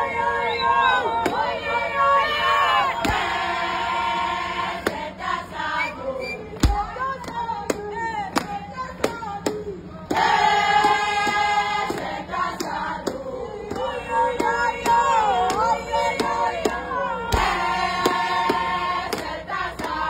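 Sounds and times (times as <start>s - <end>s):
women singing together: 0.0s - 20.0s
rhythmic hand clapping: 4.3s - 5.7s, 6.5s - 20.0s.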